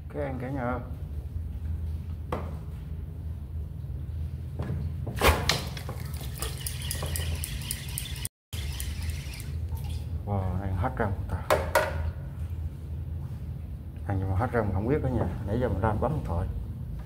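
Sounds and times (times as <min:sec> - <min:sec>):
fishing reel clicking and rattling: 0:06.6 - 0:09.6.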